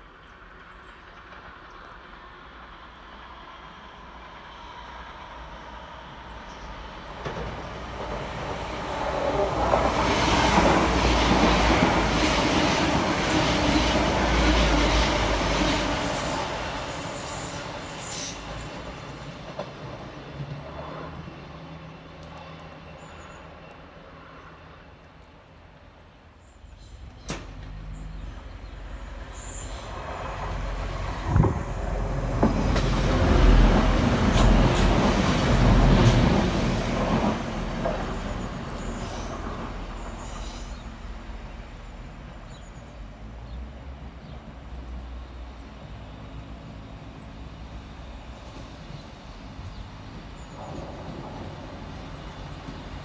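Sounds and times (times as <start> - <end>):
diesel train passing: 0.0 - 53.0
diesel train running at platform: 0.0 - 53.0
clack on the track: 7.2 - 8.1.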